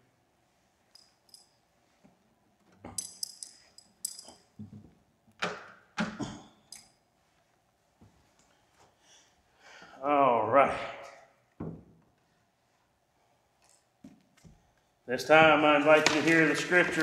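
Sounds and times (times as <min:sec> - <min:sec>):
light metallic clinks and jingles: 0:00.9 - 0:01.8, 0:02.9 - 0:04.6.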